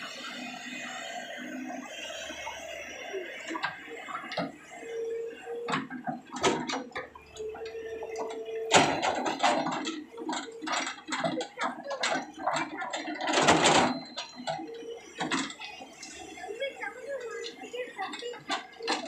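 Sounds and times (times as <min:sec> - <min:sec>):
steady machine whine: 0:00.0 - 0:19.0
excavator bucket crunching stones: 0:05.8 - 0:16.0.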